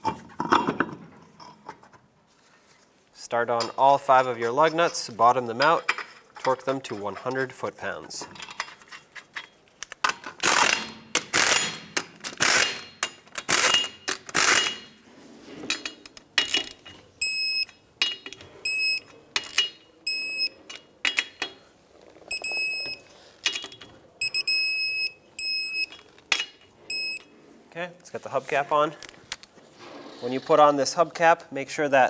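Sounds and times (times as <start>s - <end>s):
wrench clicks: 8.4s - 14.9s
torque wrench beeping: 17.2s - 17.8s, 18.6s - 20.6s, 22.3s - 26.0s, 26.9s - 27.3s.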